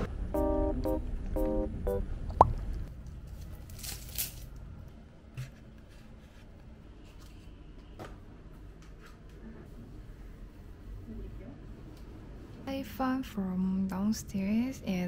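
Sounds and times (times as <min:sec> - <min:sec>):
guitar music: 0:00.0 - 0:02.1.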